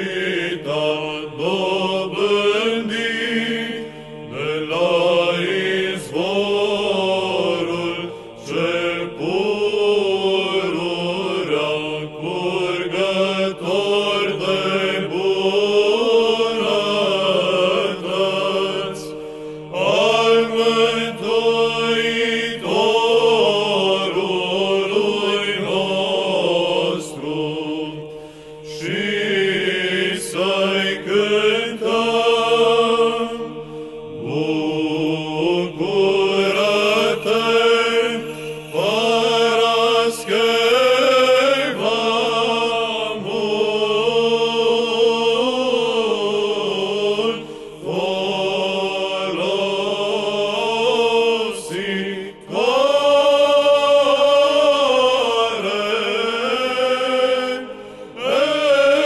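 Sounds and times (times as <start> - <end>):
men's choir chanting: 0.0 - 59.0
singers breathing: 8.0 - 8.5, 19.1 - 19.8, 28.0 - 28.7, 33.4 - 34.2, 38.2 - 38.6, 47.4 - 47.8, 57.7 - 58.2.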